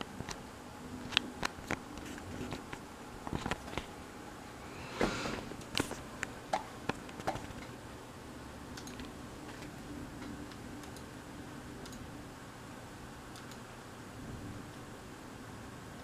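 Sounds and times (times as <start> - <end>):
steady low hum: 0.0 - 16.0
sharp clicks: 8.7 - 11.1, 11.8 - 12.0, 13.3 - 13.7.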